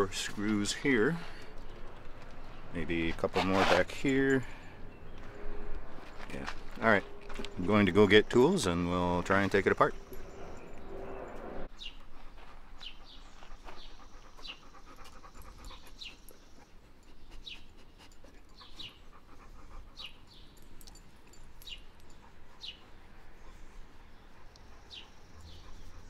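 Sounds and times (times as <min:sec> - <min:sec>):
dog panting softly: 0:12.1 - 0:26.0.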